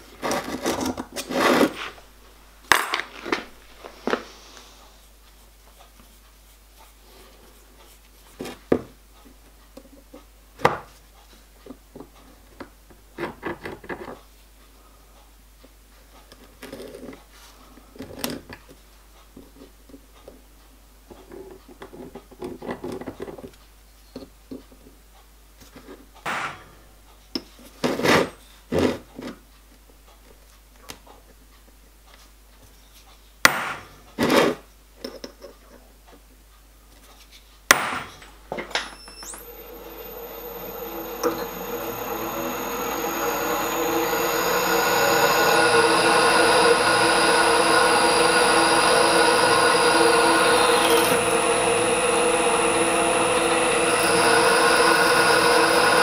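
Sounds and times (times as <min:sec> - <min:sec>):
drill press motor whining: 0:38.2 - 0:56.0.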